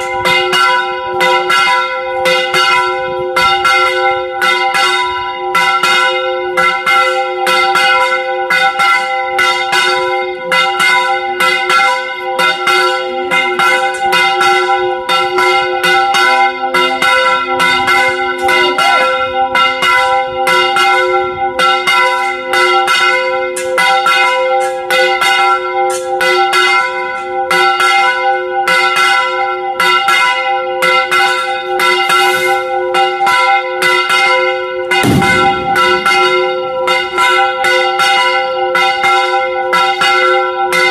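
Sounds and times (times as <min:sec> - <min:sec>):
church bells ringing rapidly: 0:00.0 - 0:40.9.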